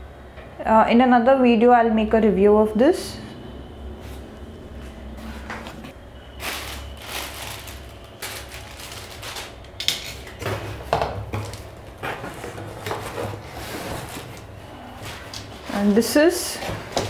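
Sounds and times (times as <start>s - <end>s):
rustling: 6.4s - 9.6s.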